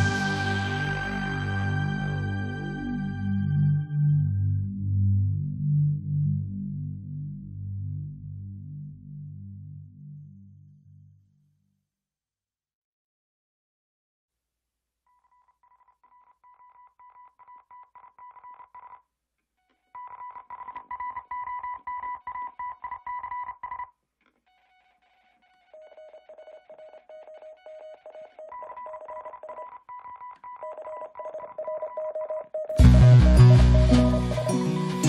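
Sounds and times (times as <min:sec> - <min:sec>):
instrumental music repeated high notes: 0:00.0 - 0:04.3, 0:32.8 - 0:35.0.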